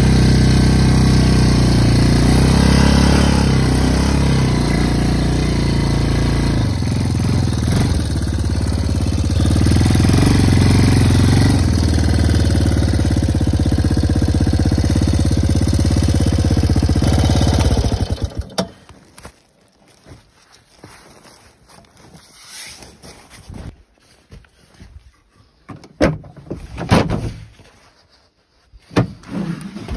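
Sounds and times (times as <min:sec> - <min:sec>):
atv engine running: 0:00.0 - 0:19.3.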